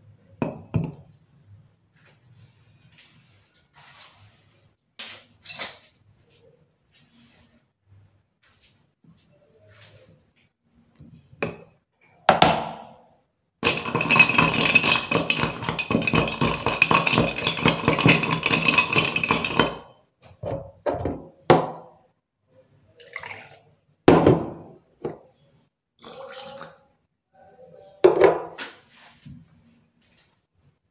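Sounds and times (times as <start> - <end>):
ice rattling in a glass: 13.6 - 19.9
metal straw knocking glass: 13.6 - 19.9.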